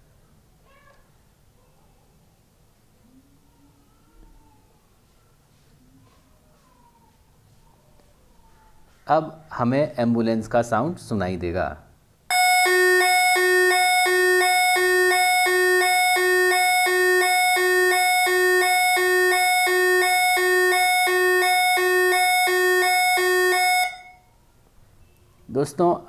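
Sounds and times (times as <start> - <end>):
electronic two-tone siren: 12.3 - 24.2.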